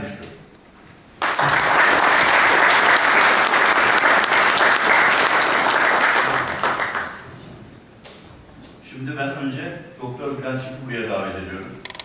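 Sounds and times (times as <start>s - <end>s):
audience applauding: 1.2s - 7.5s.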